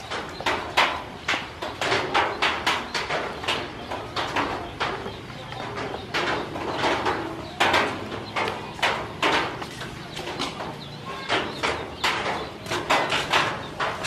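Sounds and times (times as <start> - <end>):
ducklings peeping: 0.0 - 14.0.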